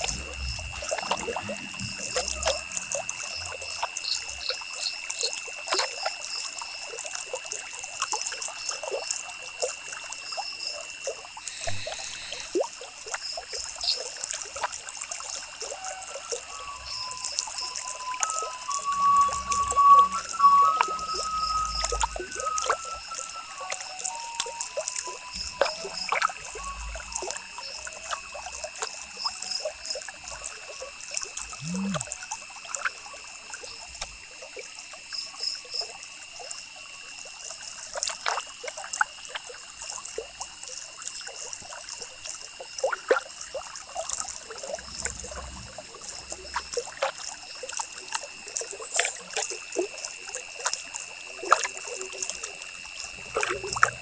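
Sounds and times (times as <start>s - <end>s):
faint high whine: 0.0s - 6.1s, 11.2s - 34.4s, 44.0s - 48.2s, 51.5s - 54.0s.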